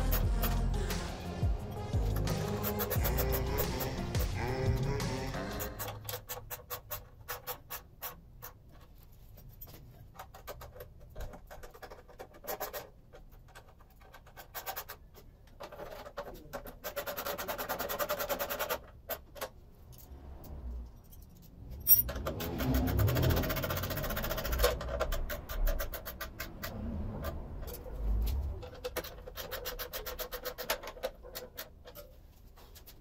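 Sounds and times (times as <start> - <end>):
ratchet wrench clicking: 0.0 - 8.6, 21.8 - 27.8.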